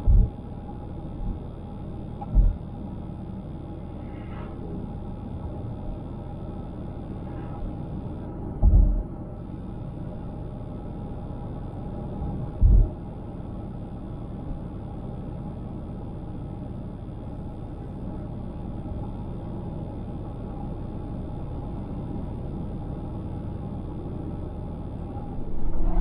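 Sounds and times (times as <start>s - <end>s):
road and tyre rumble: 23.4s - 26.0s.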